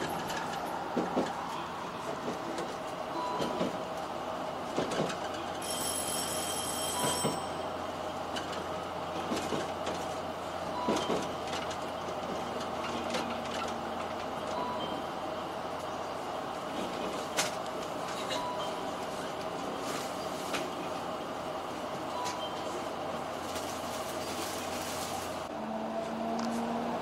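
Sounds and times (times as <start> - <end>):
wheels clacking over rail joints: 0.0 - 7.6, 8.3 - 15.0
train running rumble: 0.0 - 27.0.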